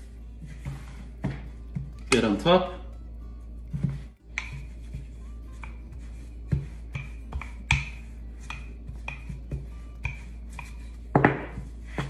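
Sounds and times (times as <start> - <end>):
rolling pin knocking on countertop: 6.5 - 12.0.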